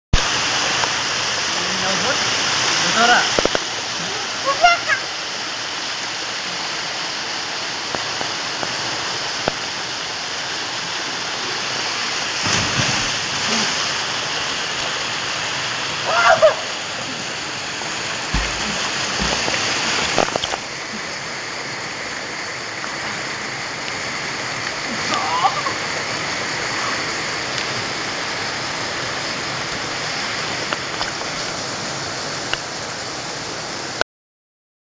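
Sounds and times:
waterfall rushing: 0.2 - 34.0
person splashing into pool: 12.4 - 14.1, 18.2 - 20.7.

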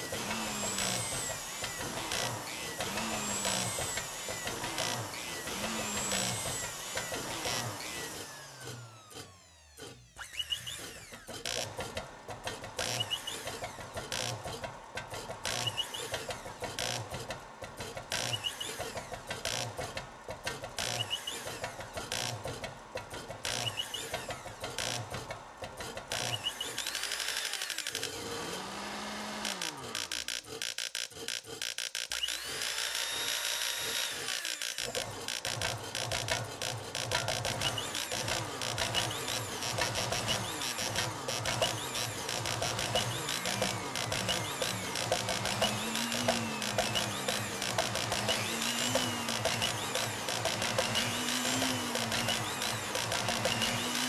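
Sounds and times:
motors playing a tune: 0.0 - 14.6, 15.2 - 19.9, 20.7 - 22.7, 26.1 - 54.0
motors buzzing melody notes: 34.6 - 54.0
fast clicking beat: 34.8 - 54.0.

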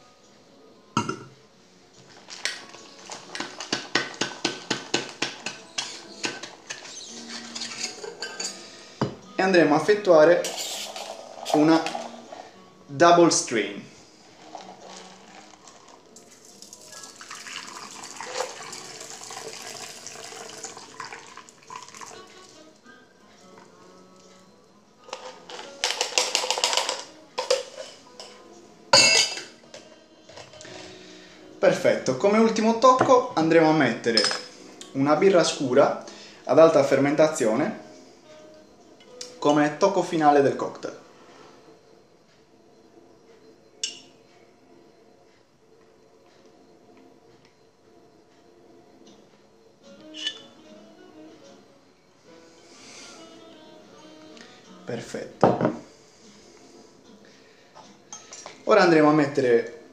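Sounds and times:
ice rattling in metal shaker: 10.4 - 12.2, 14.3 - 22.2.

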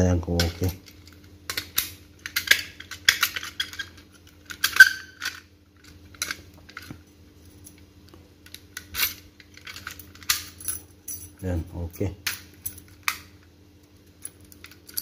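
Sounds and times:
keys jingling on a ring: 8.9 - 13.0.

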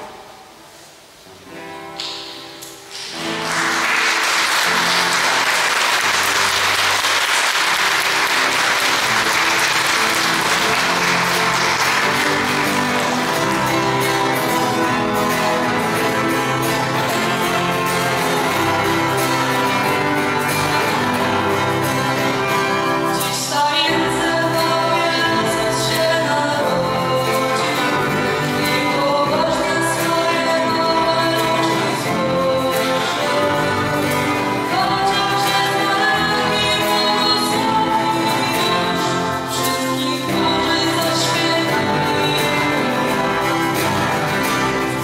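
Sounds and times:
instrumental carol music: 2.6 - 45.0
audience applauding: 2.9 - 23.1
person singing: 8.0 - 45.0.

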